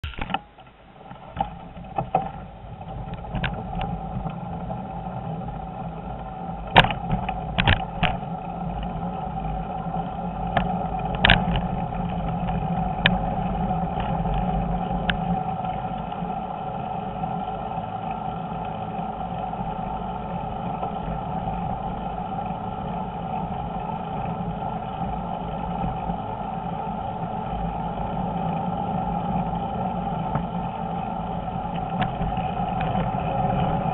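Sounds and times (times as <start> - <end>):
bicycle tyres rumbling on paving: 0.0 - 33.9
bicycle knocking over bumps: 6.6 - 9.1.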